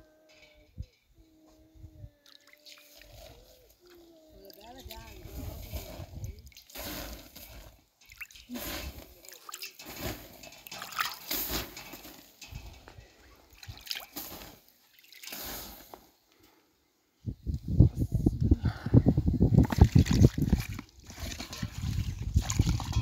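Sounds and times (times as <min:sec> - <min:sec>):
drips: 0:08.0 - 0:08.6, 0:09.2 - 0:09.8
liquid sloshing and splashing: 0:08.0 - 0:11.5, 0:13.5 - 0:15.4, 0:19.6 - 0:23.0.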